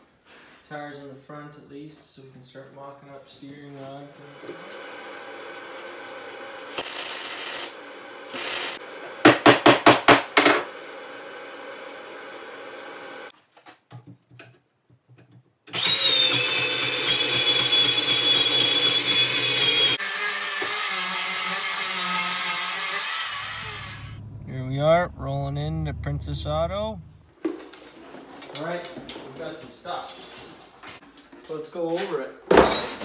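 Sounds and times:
angle grinder whining: 0:04.4 - 0:09.2, 0:15.7 - 0:24.6
welding bursts: 0:06.7 - 0:08.8, 0:21.5 - 0:24.2.

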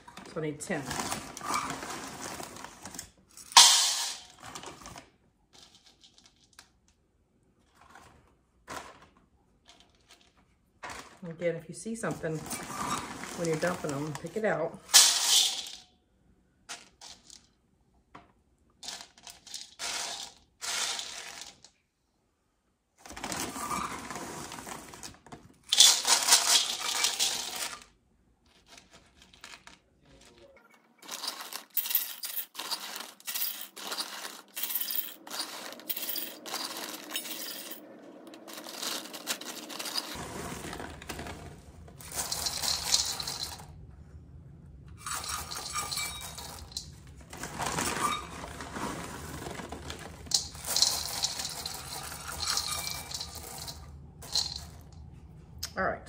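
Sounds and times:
hand sifting beans: 0:11.9 - 0:15.8, 0:18.8 - 0:21.6, 0:23.1 - 0:27.9, 0:28.6 - 0:43.6, 0:45.0 - 0:54.9
dry beans poured into metal bowl: 0:12.0 - 0:15.8, 0:18.8 - 0:21.7, 0:25.7 - 0:27.9, 0:28.6 - 0:43.6, 0:45.0 - 0:54.9.

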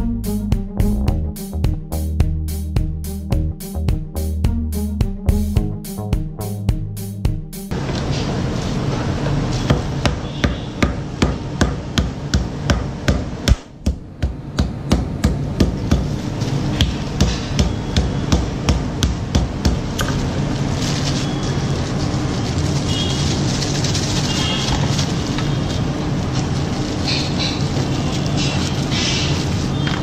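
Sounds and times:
rhythmic knocking: 0:00.0 - 0:07.8, 0:16.8 - 0:19.9
low hum: 0:00.0 - 0:07.9.

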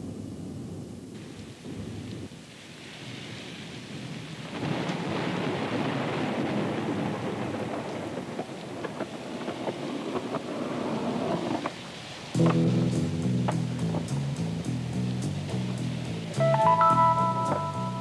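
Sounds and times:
rain: 0:00.0 - 0:18.0
rolling thunder: 0:03.4 - 0:11.7.

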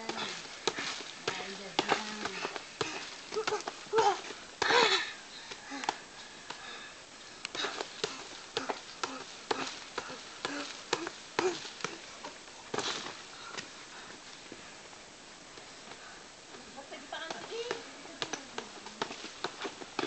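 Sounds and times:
punches landing with sharp slaps: 0:00.0 - 0:06.6, 0:07.5 - 0:12.0, 0:17.2 - 0:20.0.

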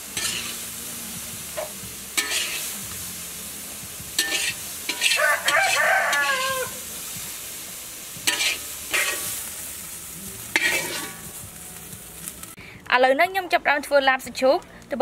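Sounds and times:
metal spatula scraping wok: 0:00.0 - 0:00.8, 0:01.5 - 0:02.9, 0:04.1 - 0:07.1, 0:08.2 - 0:11.5
meat sizzling: 0:00.0 - 0:12.6
rooster crowing: 0:05.1 - 0:06.8.

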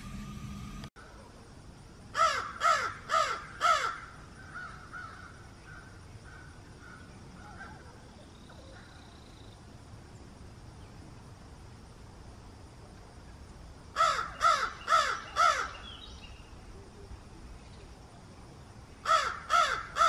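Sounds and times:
crow cawing: 0:02.2 - 0:07.7, 0:14.0 - 0:15.8, 0:19.0 - 0:20.0.

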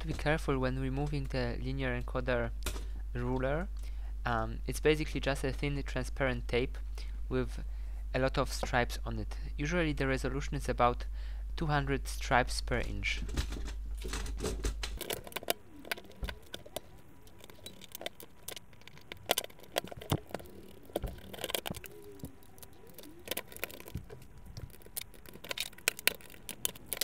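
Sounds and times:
plastic parts clicking and rattling: 0:12.7 - 0:27.0
faint squeaks: 0:15.0 - 0:27.0.

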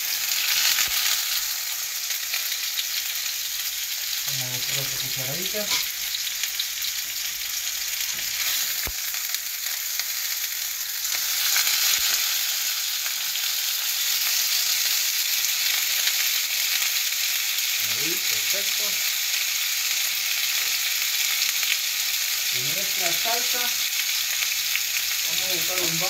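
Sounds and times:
fish sizzling in hot oil: 0:00.0 - 0:26.0
spatula turning fish in pan: 0:05.4 - 0:10.1.

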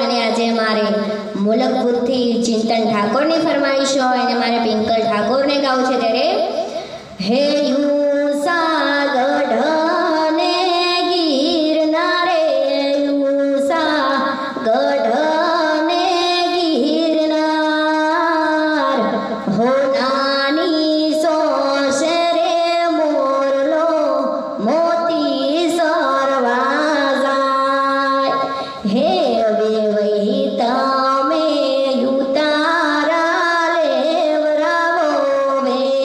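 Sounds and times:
woman singing into a microphone: 0:00.0 - 0:36.0.

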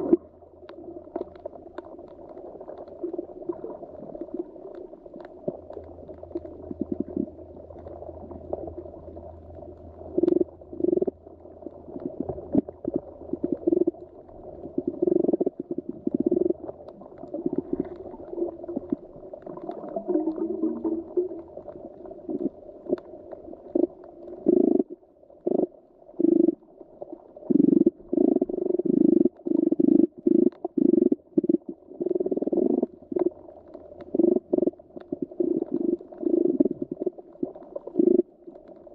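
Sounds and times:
underwater rumble of moving water: 0:00.0 - 0:38.9
water gurgling surges: 0:17.0 - 0:22.1.

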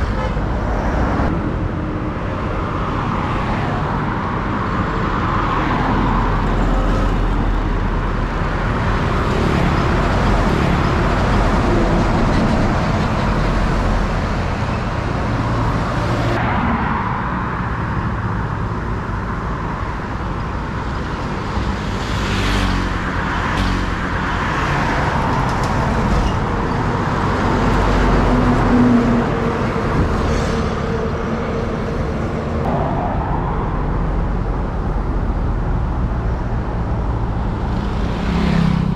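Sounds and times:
highway traffic passing: 0:00.0 - 0:38.9.

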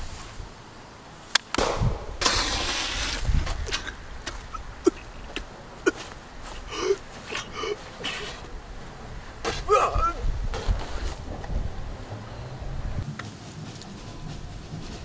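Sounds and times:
hissing rush: 0:00.0 - 0:11.4
gunshot crack: 0:01.6 - 0:03.3.

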